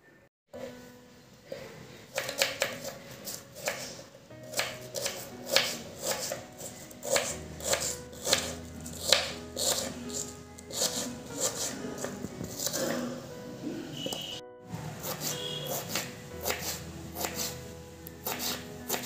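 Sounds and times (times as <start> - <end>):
soft background music: 0.6 - 19.0
knife slicing onions on board: 2.1 - 12.9, 15.0 - 17.6, 18.2 - 19.0.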